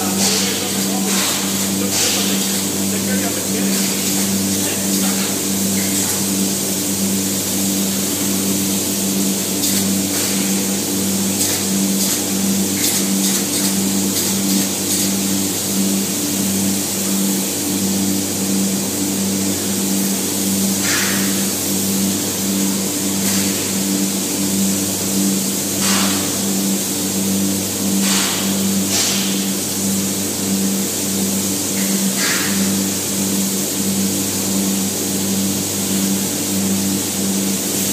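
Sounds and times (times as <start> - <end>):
foam spray hissing: 0.0 - 18.3, 18.9 - 37.9
machine hum: 0.0 - 37.9.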